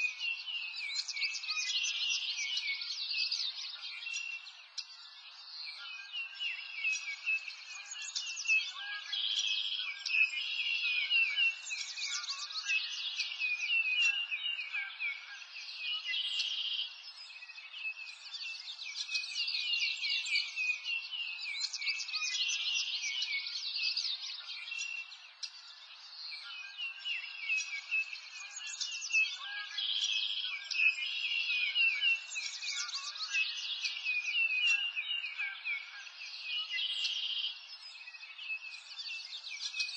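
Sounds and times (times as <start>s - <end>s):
songbirds chirping and twittering: 0.0s - 39.9s.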